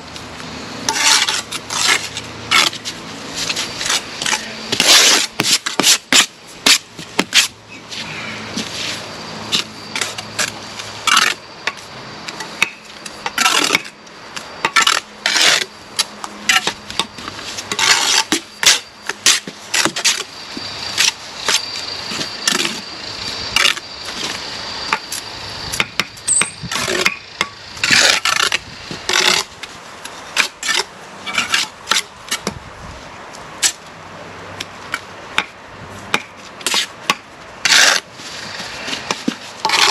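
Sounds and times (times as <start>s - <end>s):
trowels scraping mortar: 0.9s - 14.0s, 16.5s - 20.3s, 27.8s - 29.6s, 30.3s - 32.5s, 36.6s - 37.0s, 37.6s - 39.9s.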